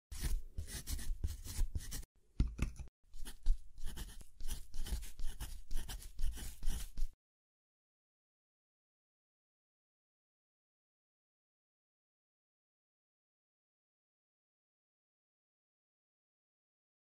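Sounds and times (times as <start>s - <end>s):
pen nib scratching on paper: 0.2s - 2.0s, 3.1s - 7.2s.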